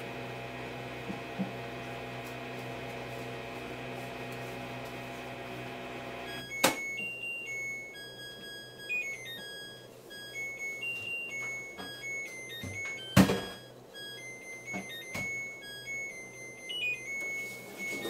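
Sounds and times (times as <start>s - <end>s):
washing machine motor hum: 0.0s - 18.0s
electronic beep melody: 6.3s - 18.0s.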